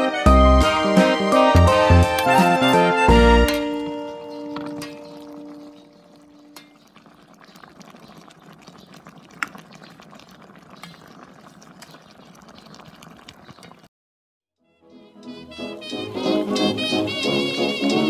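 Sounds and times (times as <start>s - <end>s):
stew bubbling in a pot: 3.6s - 13.9s.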